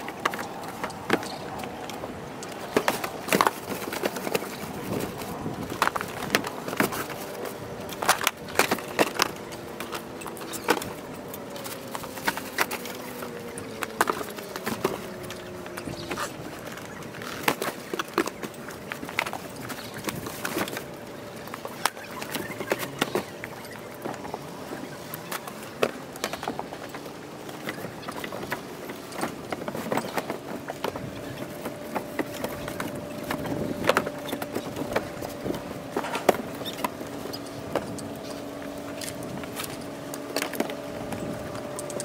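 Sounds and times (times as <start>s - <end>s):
boxes knocking and scraping: 0.0s - 42.0s.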